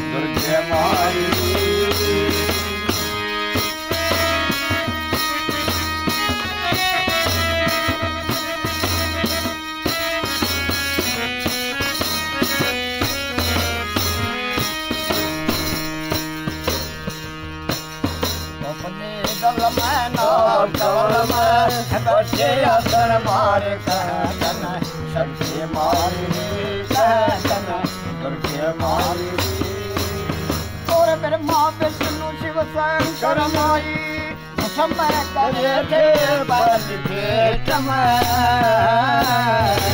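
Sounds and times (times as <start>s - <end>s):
man singing: 0.0s - 5.0s, 18.6s - 39.9s
harmonium playing: 0.0s - 39.9s
tambourine jingling: 0.3s - 39.9s.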